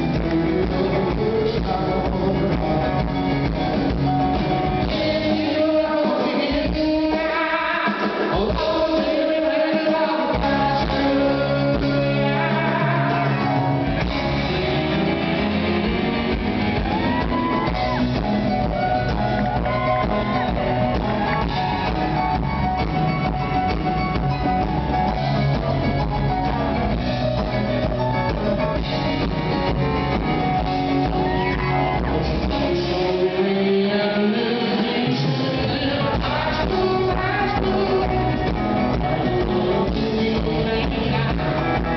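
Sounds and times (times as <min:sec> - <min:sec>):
man singing: 0:00.0 - 0:14.5, 0:31.0 - 0:41.9
live rock band: 0:00.0 - 0:41.9.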